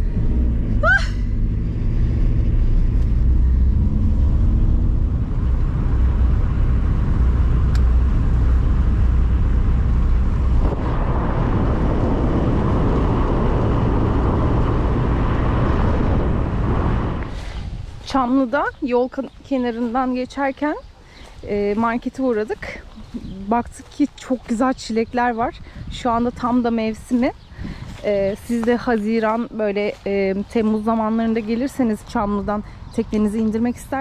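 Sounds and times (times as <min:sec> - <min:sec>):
van engine and tyres rumbling: 0:00.0 - 0:34.0
loud rushing noise: 0:01.5 - 0:18.0.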